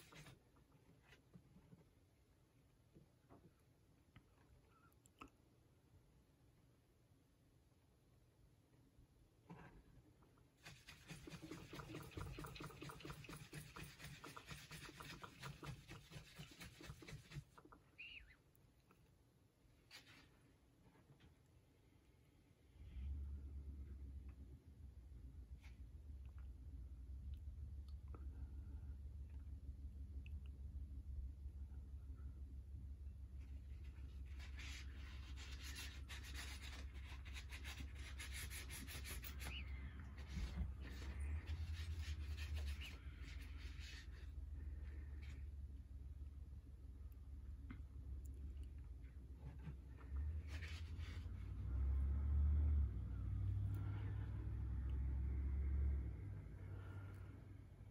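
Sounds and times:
cloth rubbing on steel: 10.6 - 17.6.

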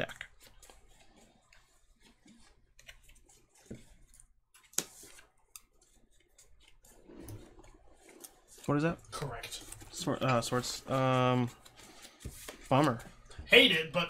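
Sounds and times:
cards clicking and tapping: 2.3 - 6.5.

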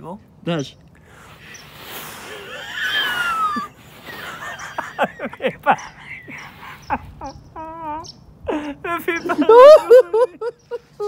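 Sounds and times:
man wheezing laughter: 2.3 - 11.0.

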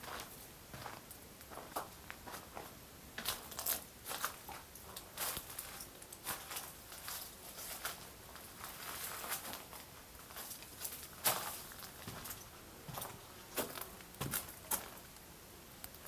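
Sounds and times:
footsteps on dry leaves and stones: 0.0 - 15.0.

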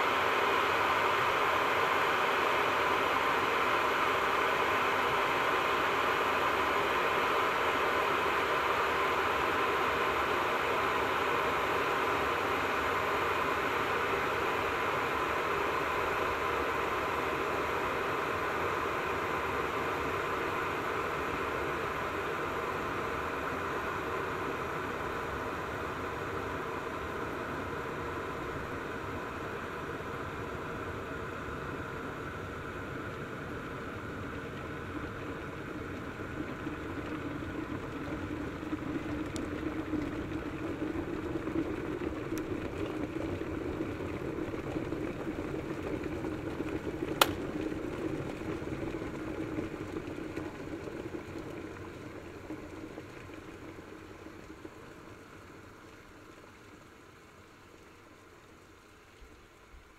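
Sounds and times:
kettle boiling: 0.0 - 58.8
kettle switch click: 47.2 - 47.4.

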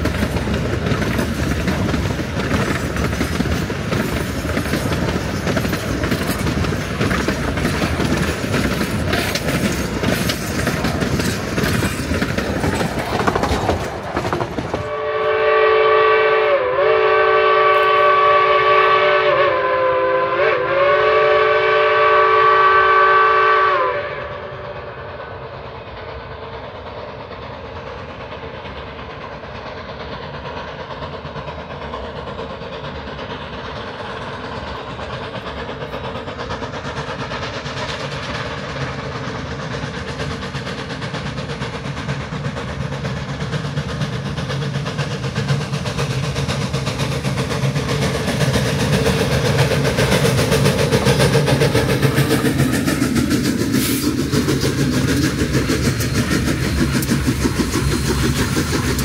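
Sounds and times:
steam train passing: 0.0 - 59.0
train rumble: 0.0 - 59.0
steam locomotive whistle: 14.8 - 25.4.

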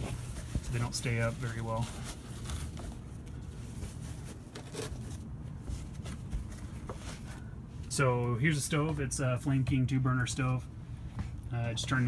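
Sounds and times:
fabric rustling: 0.0 - 8.0.

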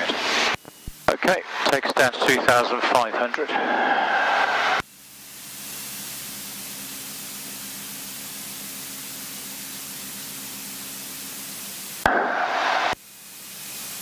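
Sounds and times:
intercom hiss: 0.0 - 4.8, 12.0 - 13.0.

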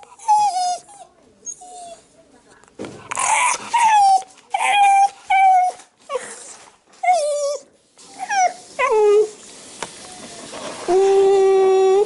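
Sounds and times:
dog whining: 0.0 - 2.0, 3.2 - 9.4, 10.8 - 12.0.

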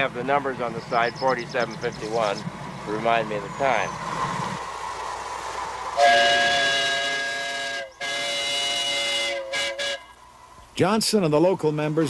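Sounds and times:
hissing steam: 2.0 - 7.9
steam whistle blowing a chord: 6.0 - 10.2.

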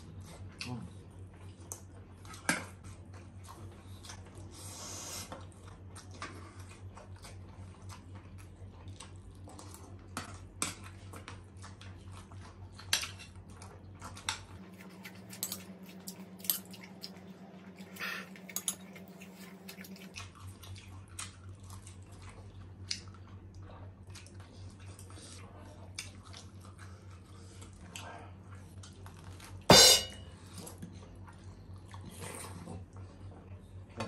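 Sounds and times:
chewing: 0.1 - 29.6, 30.4 - 34.0
low hum: 14.6 - 20.2
cutlery clicking on plates: 14.8 - 17.2, 17.9 - 19.9
sharp clink: 29.7 - 30.2.

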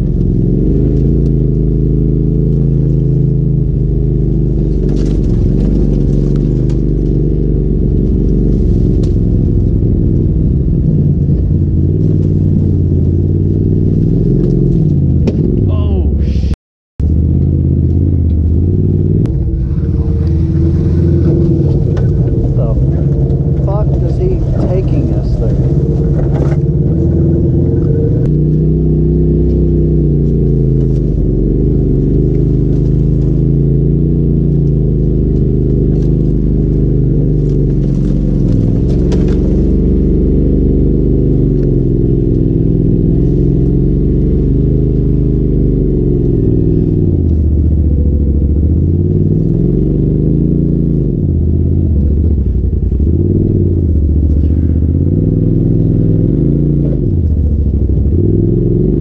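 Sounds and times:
engine revving: 0.0 - 59.0.

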